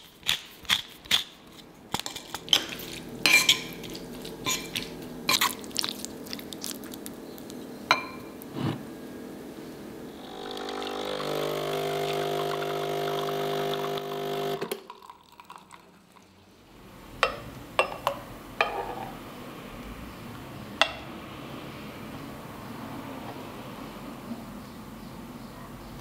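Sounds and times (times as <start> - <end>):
espresso machine pump humming: 10.1 - 16.2.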